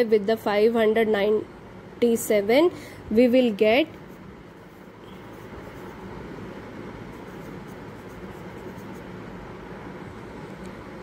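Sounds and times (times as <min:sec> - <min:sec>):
pen scratching on paper: 0:03.9 - 0:06.2, 0:07.0 - 0:09.2.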